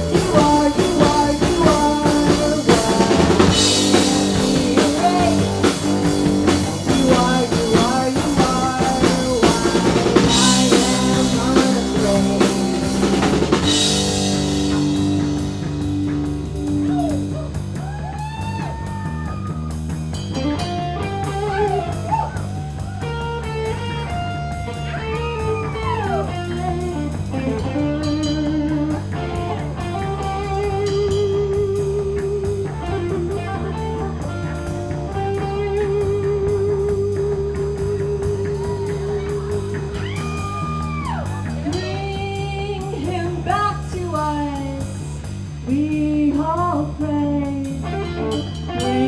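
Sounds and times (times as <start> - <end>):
bass guitar: 0.0 - 49.0
drums: 0.0 - 49.0
electric guitar solo: 20.3 - 41.9.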